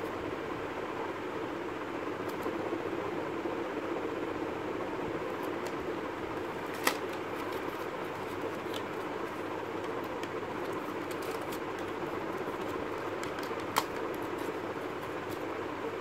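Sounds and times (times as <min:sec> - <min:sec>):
steady background hiss: 0:00.0 - 0:16.0
cardboard box rustling: 0:06.4 - 0:15.5.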